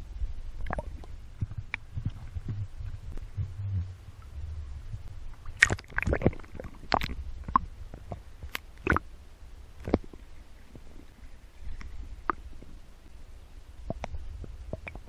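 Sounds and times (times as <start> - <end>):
muffled underwater rumble: 0.0 - 15.0
water splashing: 0.6 - 4.4, 5.3 - 9.1.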